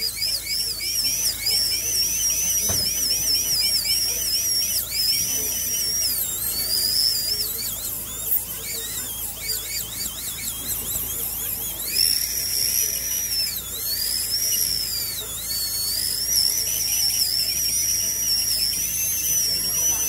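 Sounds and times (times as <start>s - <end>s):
dental drill whining: 0.0s - 20.0s.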